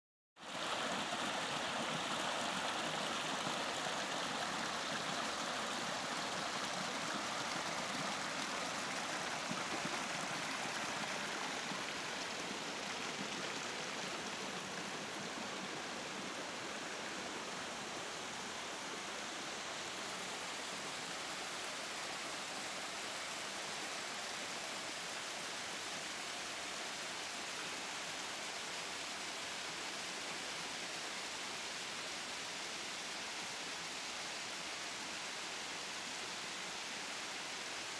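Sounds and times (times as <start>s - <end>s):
stream splashing over rocks: 0.4s - 18.4s.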